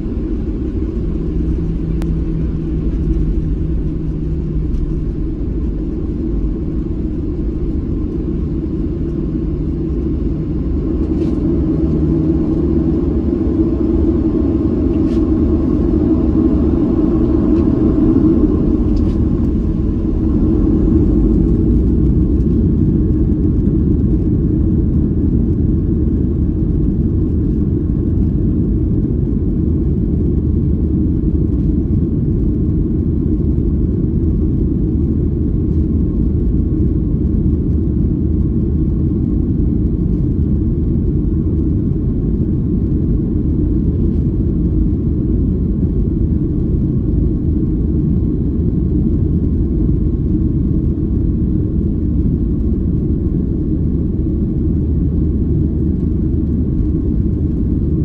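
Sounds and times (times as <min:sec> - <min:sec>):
aircraft cabin low rumble: 0:00.0 - 0:58.0
faint steady whine: 0:00.0 - 0:58.0.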